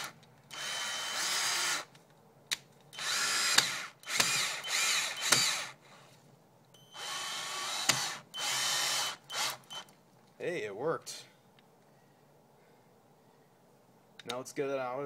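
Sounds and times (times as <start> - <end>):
cordless drill motor whining: 0.0 - 1.9, 3.0 - 5.8, 7.0 - 9.9.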